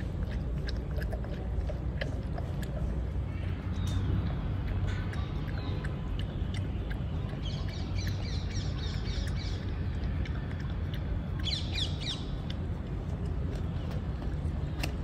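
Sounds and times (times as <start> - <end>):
low background rumble: 0.0 - 15.0
birds chirping: 2.6 - 10.7, 11.3 - 13.0.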